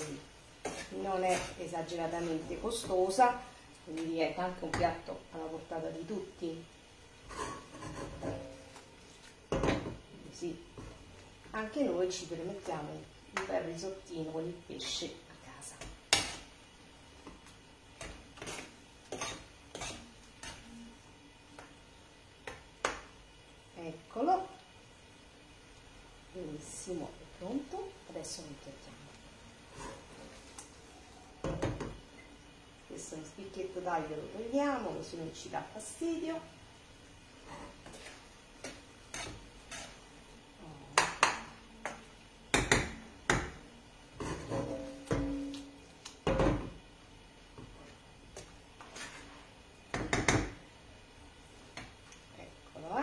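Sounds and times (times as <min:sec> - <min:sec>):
spoon scraping frying pan: 0:00.5 - 0:03.0, 0:07.2 - 0:08.8, 0:18.0 - 0:20.9, 0:29.6 - 0:30.6, 0:37.4 - 0:40.1, 0:44.1 - 0:45.5, 0:48.8 - 0:49.5
utensils knocking on frying pan: 0:42.5 - 0:43.6, 0:49.9 - 0:50.6.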